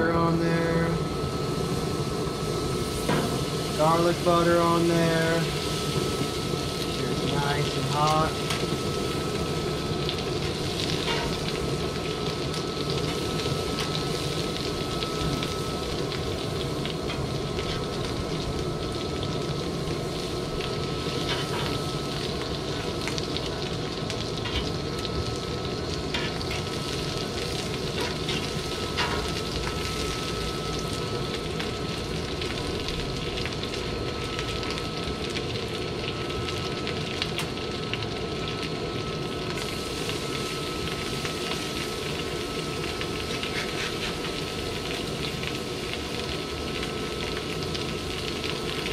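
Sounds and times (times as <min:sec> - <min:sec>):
fish sizzling in a pan: 0:00.0 - 0:48.9
metal spatula scraping a pan: 0:43.4 - 0:44.3.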